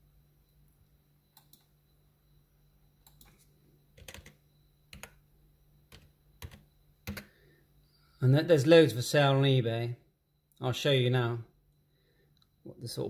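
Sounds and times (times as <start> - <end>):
low steady hum: 0.0 - 13.0
faint irregular clicks: 1.3 - 1.7, 3.0 - 5.2, 12.3 - 12.6.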